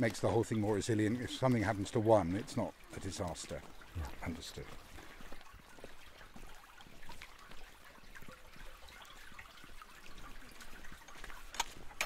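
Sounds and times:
brook babbling over stones: 0:00.0 - 0:12.0
small clicks: 0:11.5 - 0:12.0.

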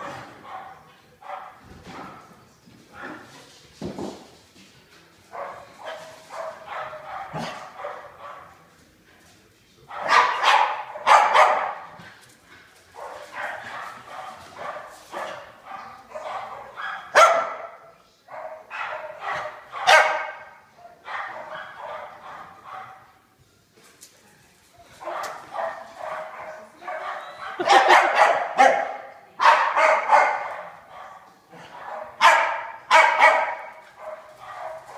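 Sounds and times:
dog barking and yipping: 0:25.1 - 0:31.2, 0:31.8 - 0:34.9.

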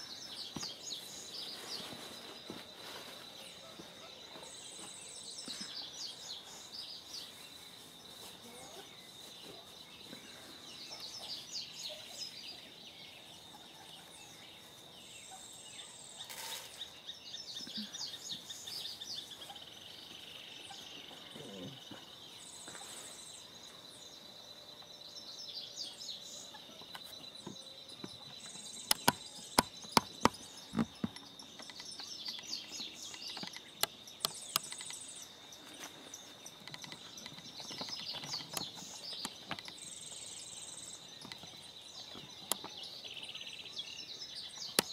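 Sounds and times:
birds chirping and calling: 0:00.0 - 0:44.9
sharp clicks: 0:28.8 - 0:35.1.

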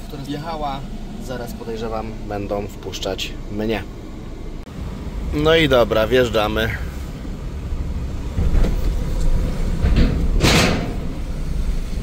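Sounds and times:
van engine and road rumble: 0:00.0 - 0:12.0
short hissing rush: 0:06.8 - 0:07.4.

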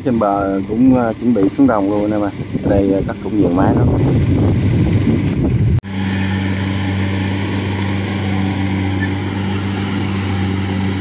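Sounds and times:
combine harvester engine humming: 0:00.0 - 0:11.0
loud noisy sound: 0:02.4 - 0:11.0.

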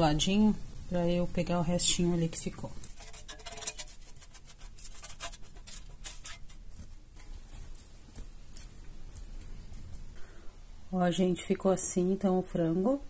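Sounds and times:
utensil clicking and scraping basket: 0:02.6 - 0:07.7.

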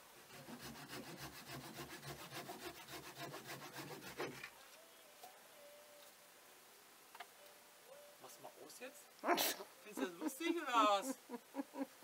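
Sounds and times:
hand saw cutting wood: 0:00.2 - 0:04.5.

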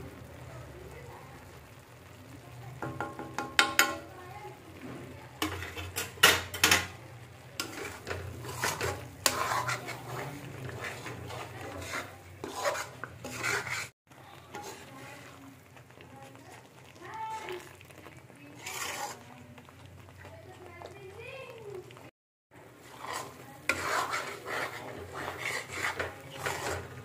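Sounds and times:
spoon scraping a metal pan: 0:02.8 - 0:04.1, 0:05.4 - 0:15.4, 0:17.2 - 0:19.8, 0:22.8 - 0:27.0.

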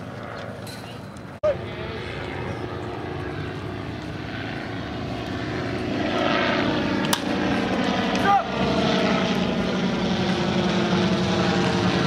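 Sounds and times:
propeller airplane engine drone: 0:00.0 - 0:12.0.

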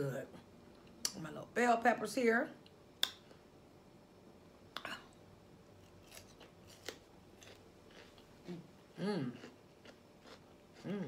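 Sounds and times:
chewing crunches: 0:05.8 - 0:11.0.

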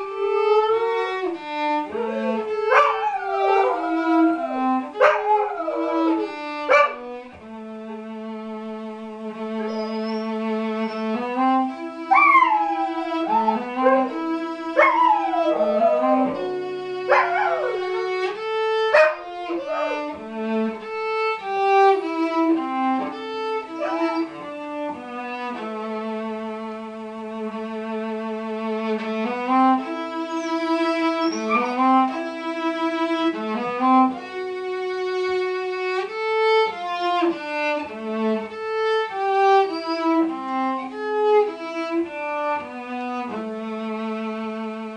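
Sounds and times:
dog howling: 0:00.0 - 0:07.0, 0:12.1 - 0:20.2, 0:23.7 - 0:24.4, 0:31.2 - 0:31.8
cello playing slow notes: 0:00.0 - 0:44.9.

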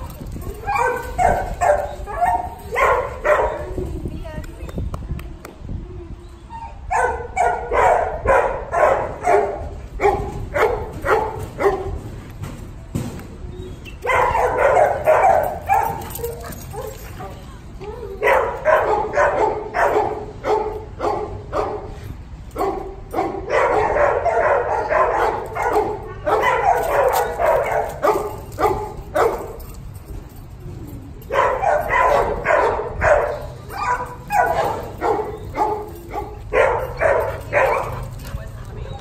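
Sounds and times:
dogs play-barking: 0:00.6 - 0:03.7, 0:14.0 - 0:17.4, 0:22.6 - 0:29.8, 0:31.2 - 0:39.0.

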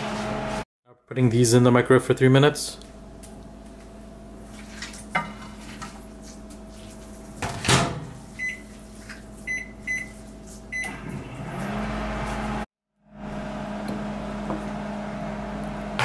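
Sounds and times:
microwave oven humming: 0:09.4 - 0:16.0.

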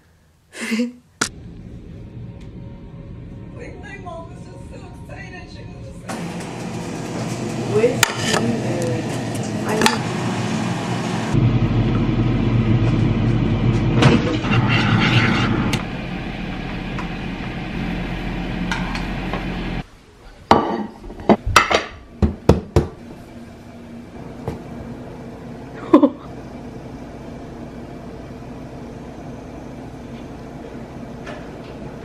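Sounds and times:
steady low hum: 0:01.2 - 0:20.1, 0:21.2 - 0:32.0.

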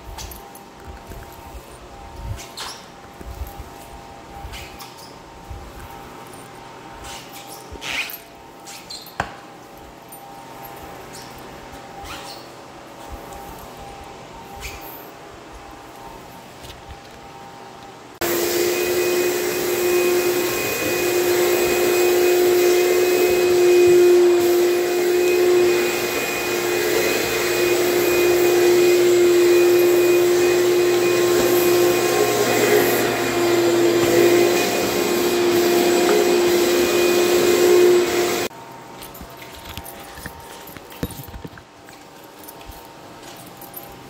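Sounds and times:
shop vacuum running: 0:00.0 - 0:43.9.

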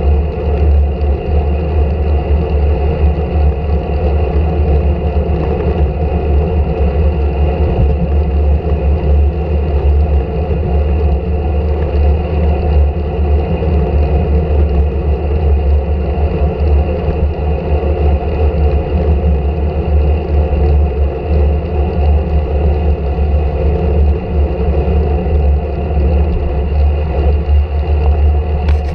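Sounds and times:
wind buffeting microphone: 0:00.0 - 0:21.7, 0:22.3 - 0:28.9
tyre noise on asphalt: 0:28.0 - 0:28.9.

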